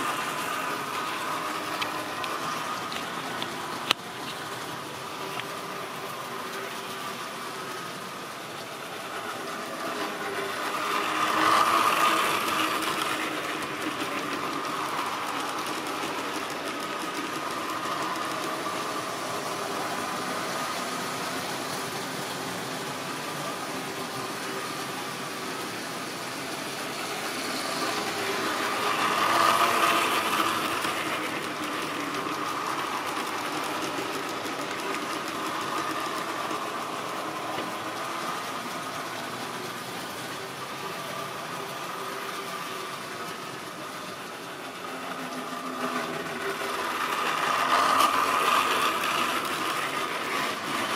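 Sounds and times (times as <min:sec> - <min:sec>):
model trains whirring on rails: 0:00.0 - 0:50.9.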